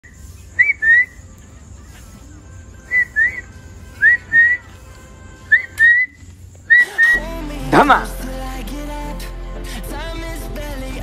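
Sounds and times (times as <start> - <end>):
person whistling two-note whistles: 2.9 - 4.6, 5.5 - 7.2.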